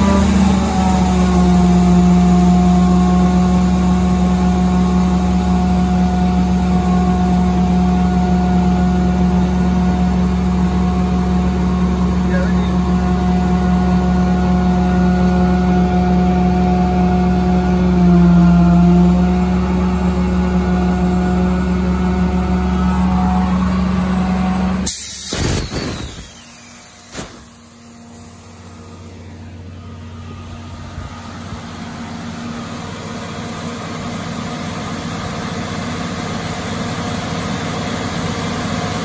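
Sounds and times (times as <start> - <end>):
air compressor diesel engine running: 0.0 - 39.0
loud burst of hissing air: 24.8 - 29.1.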